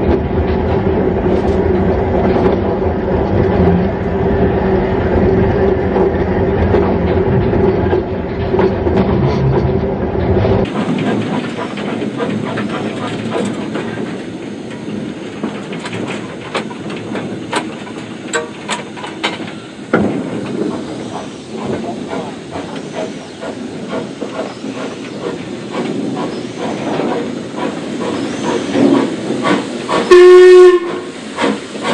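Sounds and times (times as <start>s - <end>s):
steam train rumbling: 0.0s - 31.9s.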